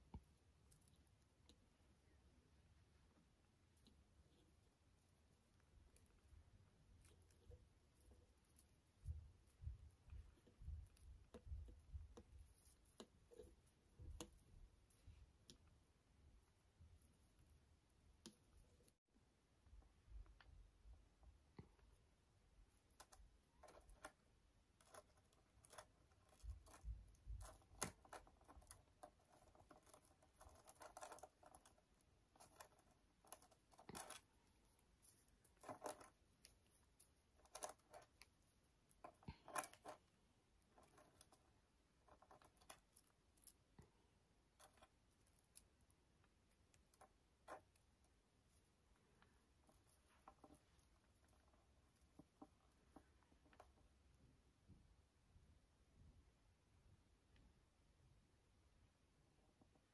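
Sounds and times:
beads clicking and rustling: 22.6 - 54.1.

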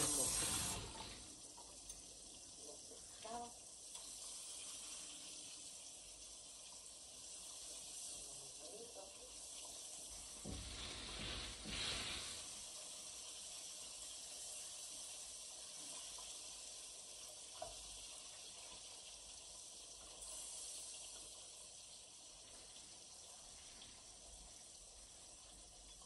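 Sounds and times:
fish sizzling in oil: 0.0 - 26.0
utensil tap: 9.6 - 11.9.

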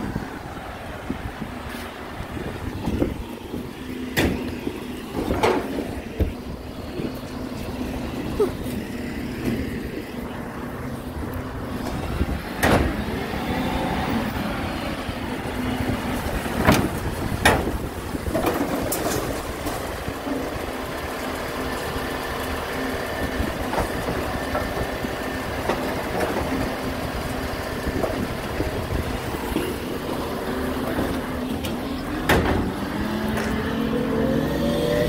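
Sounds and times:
truck engine running: 0.0 - 35.0.

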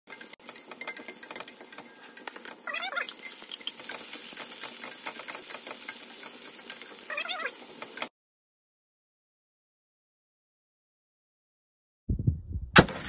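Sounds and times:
food sizzling in hot oil: 0.1 - 8.1
wooden spoon scraping a pan: 0.1 - 8.1
high-pitched wavering cries: 2.6 - 3.4, 7.1 - 7.6.

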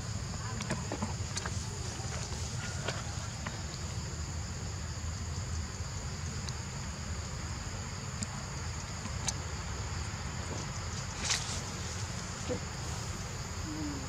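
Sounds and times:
shrill insect chorus: 0.0 - 14.0.

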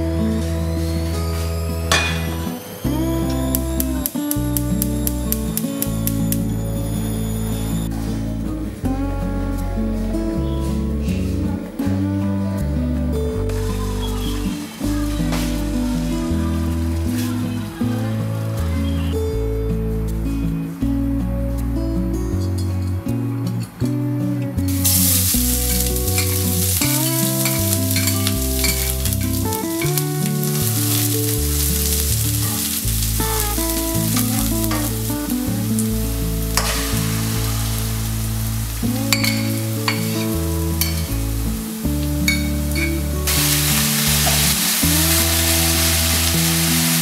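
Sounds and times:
vegetables sizzling in hot oil: 24.7 - 47.0.

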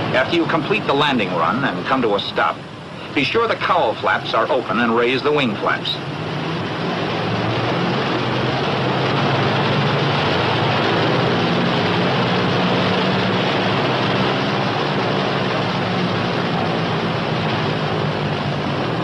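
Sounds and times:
aircraft engines running: 0.0 - 19.0.

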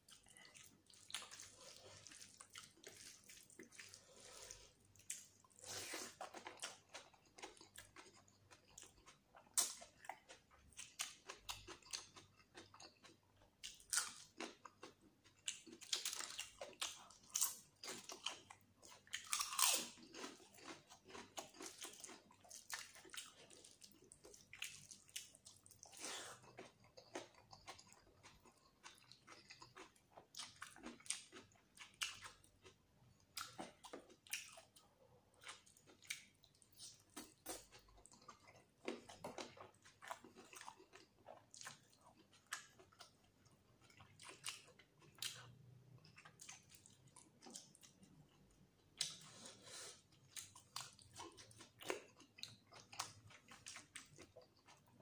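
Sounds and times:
wet chewing and lip smacking: 0.0 - 4.0, 4.9 - 34.8, 50.2 - 54.9.

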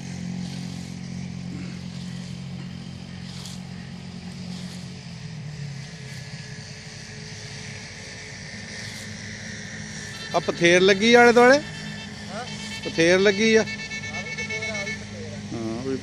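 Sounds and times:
engine running with low hum: 0.0 - 16.0
scythe swishes: 0.1 - 6.6.

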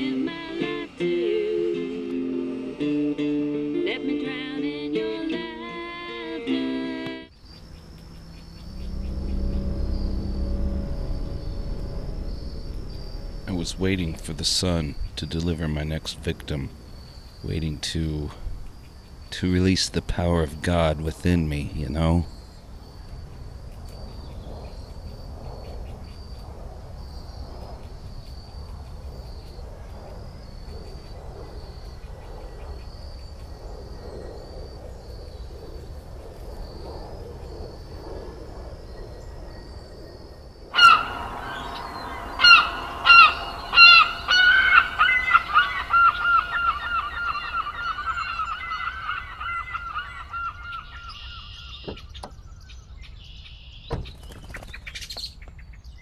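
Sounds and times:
crickets chirping: 0.0 - 6.2, 7.3 - 56.0
bird calling loudly: 40.7 - 54.8.

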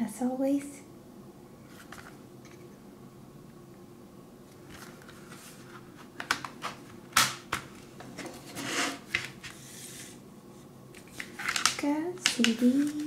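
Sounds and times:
scraping rustle: 8.1 - 10.2.

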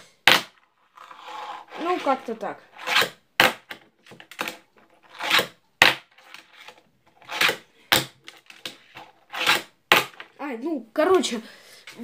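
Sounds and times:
fingerboard wheels rolling: 0.8 - 5.5.

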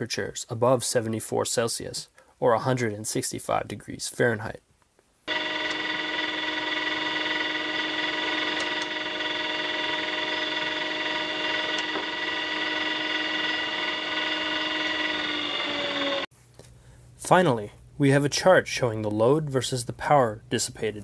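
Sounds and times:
electric motor whine: 5.3 - 16.3.

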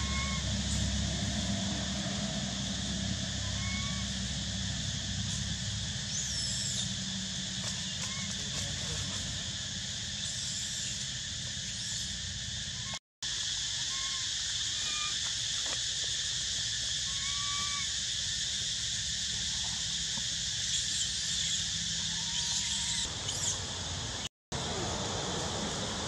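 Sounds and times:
low rumble: 0.0 - 10.0
insect drone: 0.0 - 26.0.

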